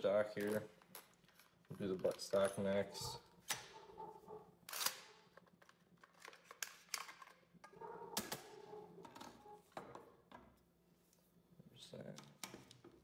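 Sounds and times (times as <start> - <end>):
shotgun parts clicking and knocking: 4.7 - 9.2.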